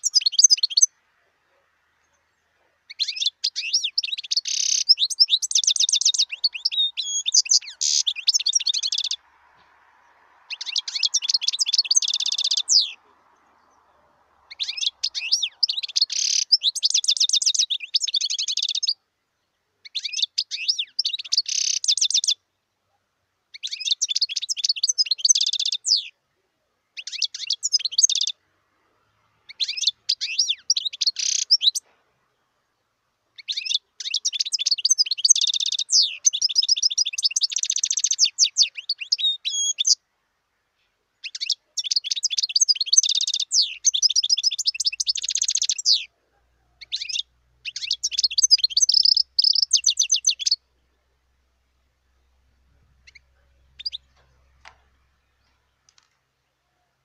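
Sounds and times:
finch twittering and trilling: 0.0 - 1.0, 2.1 - 9.3, 10.4 - 13.9, 14.5 - 19.0, 19.8 - 22.4, 23.5 - 26.1, 27.0 - 28.4, 29.5 - 31.8, 33.4 - 40.0, 41.2 - 46.2, 46.8 - 50.6, 52.2 - 56.0.

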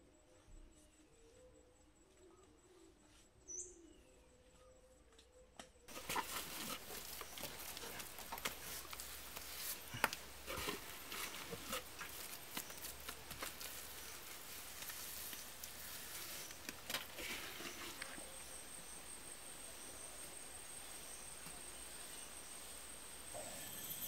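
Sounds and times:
hands working wet mud: 5.9 - 18.3.

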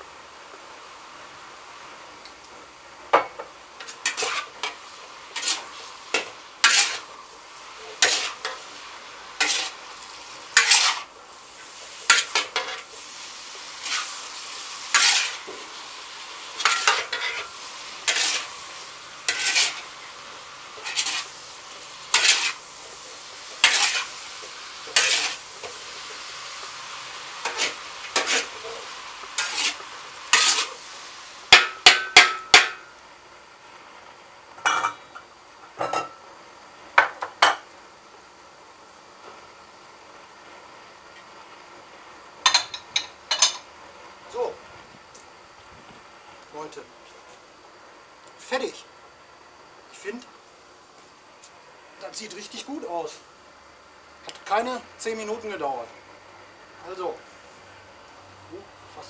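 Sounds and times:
sizzling hiss of frying: 0.0 - 59.0
metal spatula scraping wok: 3.8 - 32.8.

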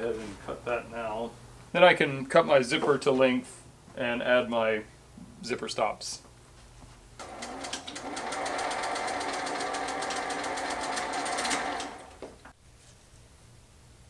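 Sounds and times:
sewing machine click: 7.2 - 12.2
sewing machine running: 7.2 - 12.2.

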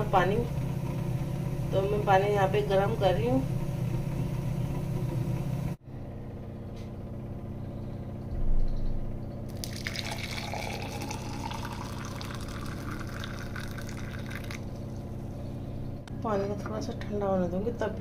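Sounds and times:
steady low hum: 0.0 - 18.0
water pouring into glass mug: 9.5 - 15.0.

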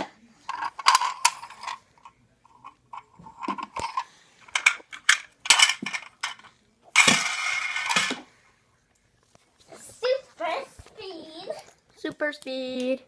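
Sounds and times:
plastic toy cars clattering: 0.4 - 8.3.

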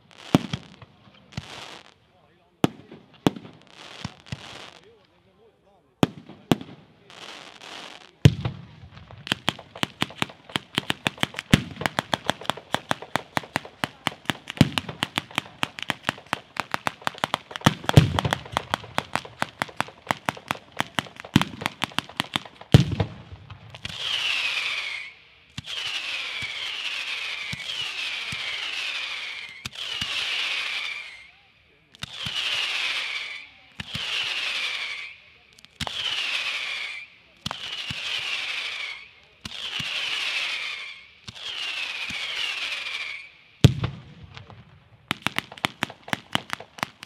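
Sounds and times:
fireworks cracking reports: 0.0 - 47.0
fireworks booms: 6.0 - 31.2, 35.8 - 47.0
fountain fireworks hissing: 9.3 - 22.9, 23.8 - 31.4, 35.8 - 43.3
falling firework whistles: 23.8 - 43.7.

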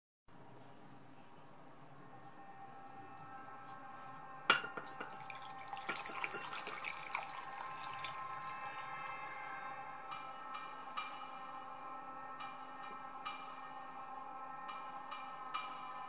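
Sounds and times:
water pouring into glass bowl: 4.5 - 9.8
water dripping: 4.6 - 10.2.

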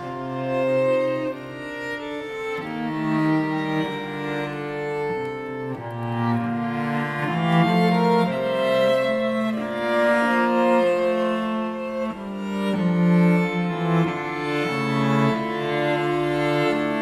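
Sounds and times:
string ensemble playing chords: 0.0 - 17.0.

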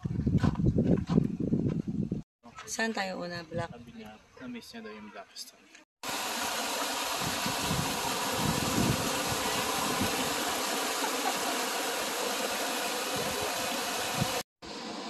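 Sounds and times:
water rushing over rocks: 6.0 - 14.4.

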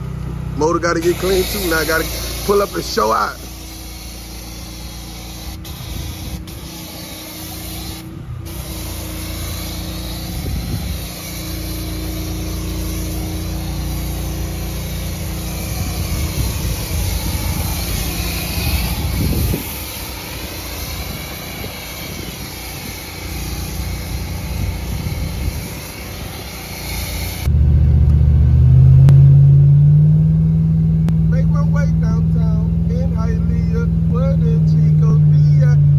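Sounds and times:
pressure washer spraying: 0.1 - 27.5
loud low drone rising in steps: 27.4 - 31.5, 33.8 - 35.9.

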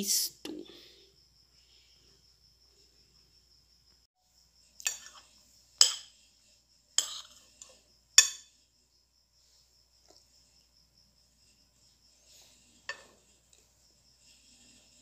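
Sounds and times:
metal spoon clinking on plate: 5.8 - 6.1, 8.2 - 8.6.

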